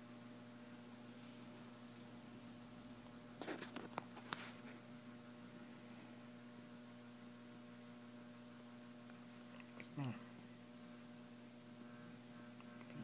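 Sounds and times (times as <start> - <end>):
faint low hum: 0.0 - 13.0
soft clicks and rustles: 1.2 - 4.8.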